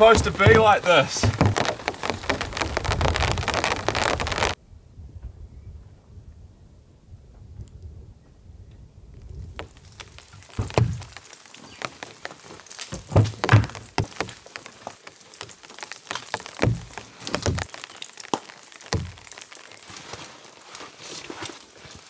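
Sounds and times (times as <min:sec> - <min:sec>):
footwear handled on gravel: 0:00.0 - 0:04.6, 0:09.4 - 0:22.0.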